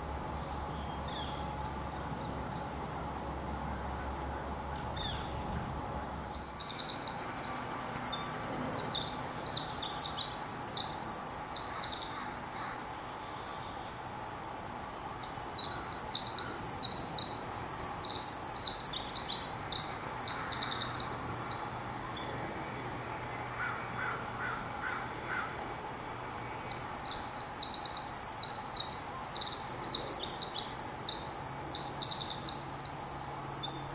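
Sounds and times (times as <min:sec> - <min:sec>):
wren singing high notes: 0:06.3 - 0:12.2, 0:15.0 - 0:22.6, 0:26.5 - 0:33.9.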